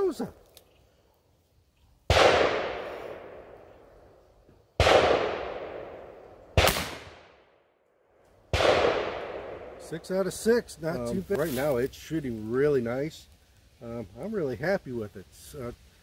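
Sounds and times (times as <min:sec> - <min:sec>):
revolver gunshots: 0:02.1 - 0:03.6, 0:04.8 - 0:07.5, 0:08.5 - 0:10.0.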